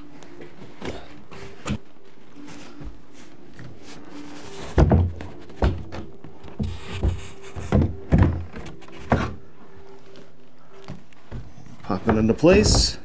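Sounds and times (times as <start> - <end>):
wooden door knocking and bumping: 12.1 - 13.0.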